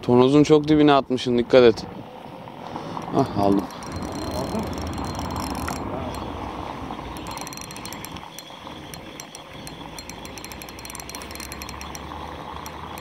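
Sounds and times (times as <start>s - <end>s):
fishing reel gears ticking: 3.0s - 13.0s.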